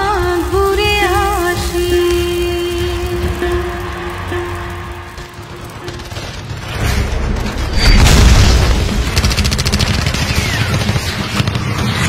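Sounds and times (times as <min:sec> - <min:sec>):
machine-gun fire: 0:03.3 - 0:12.0
explosion boom: 0:04.1 - 0:10.7.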